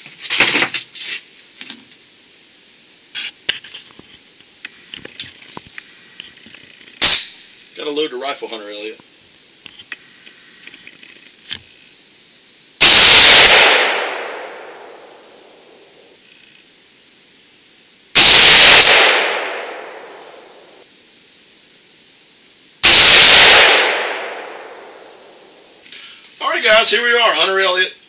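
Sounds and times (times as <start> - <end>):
rifle shots: 7.0 - 7.3, 12.8 - 16.0, 18.2 - 20.8, 22.8 - 25.6.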